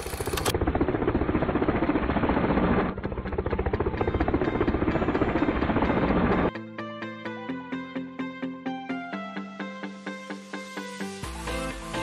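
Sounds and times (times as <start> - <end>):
fluttering mechanical whirr: 0.0 - 4.4.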